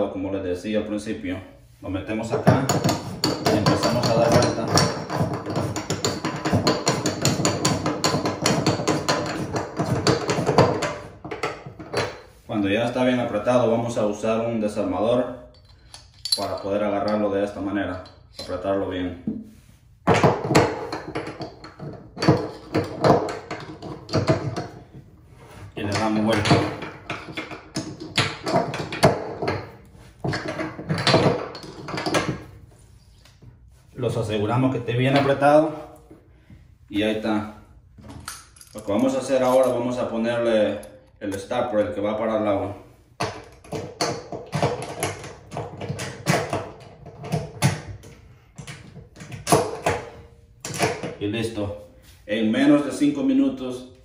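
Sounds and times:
drain stopper clicking and knocking: 2.3s - 12.1s, 20.0s - 24.8s, 25.9s - 32.5s
metal tools clanking: 15.5s - 18.8s, 38.0s - 41.1s.

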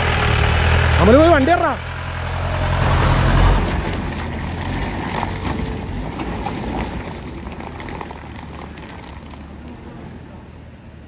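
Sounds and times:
off-road engine in mud: 0.0s - 11.0s
tyres squelching through mud: 2.8s - 10.4s.

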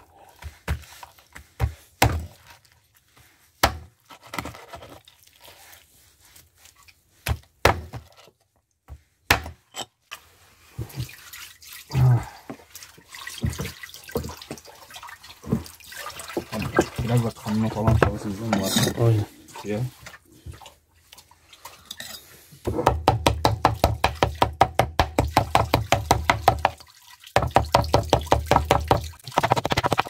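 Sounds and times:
dripping and trickling liquid: 5.0s - 7.0s, 10.7s - 18.5s, 19.4s - 22.4s, 25.3s - 29.6s.

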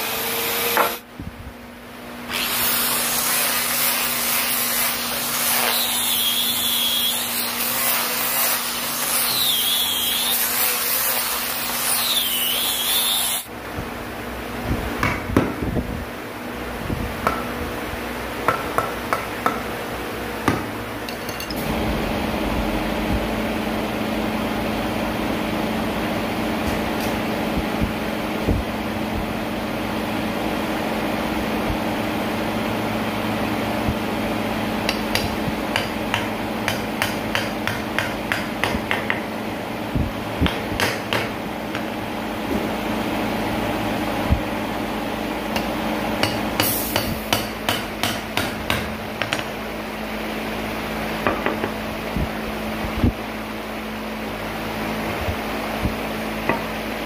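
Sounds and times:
steady machine hum: 13.4s - 57.0s.

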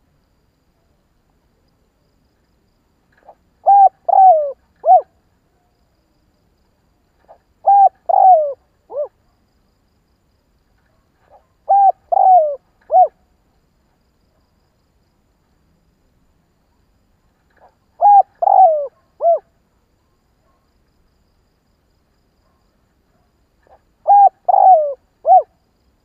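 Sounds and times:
dove cooing: 3.2s - 5.1s, 7.2s - 9.2s, 11.3s - 13.2s, 17.6s - 19.5s, 23.6s - 25.6s.

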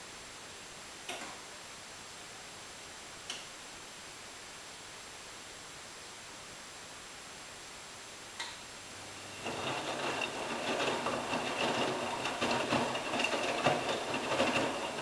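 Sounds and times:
washing machine motor whine: 9.0s - 15.0s.

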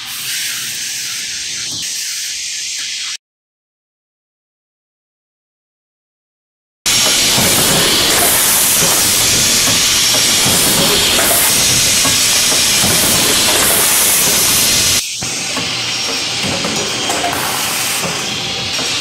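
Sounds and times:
pneumatic air hiss: 0.0s - 3.2s, 6.9s - 19.0s
packing machine clatter: 6.9s - 19.0s.

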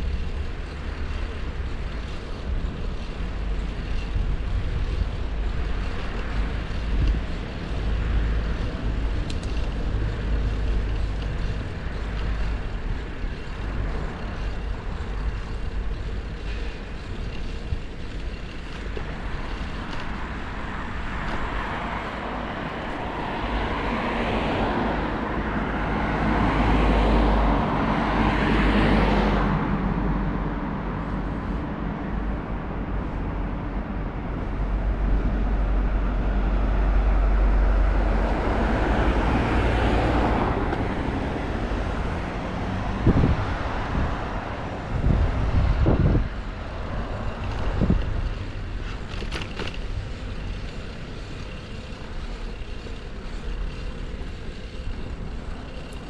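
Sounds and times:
street traffic rumble: 0.0s - 56.0s
vehicle passing close: 36.4s - 56.0s.

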